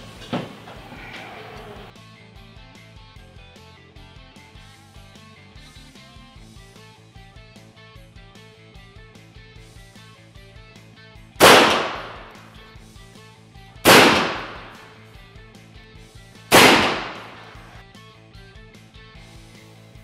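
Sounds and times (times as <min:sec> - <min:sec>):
air rifle shots: 0:11.4 - 0:12.6, 0:13.8 - 0:15.0, 0:16.5 - 0:17.8.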